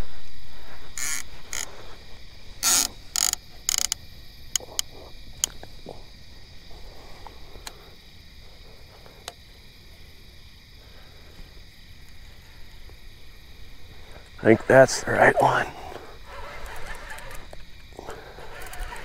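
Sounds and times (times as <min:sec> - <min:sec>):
steady high hum: 0:00.2 - 0:16.4
gear clicks: 0:01.0 - 0:01.7, 0:02.6 - 0:05.6, 0:16.2 - 0:19.0.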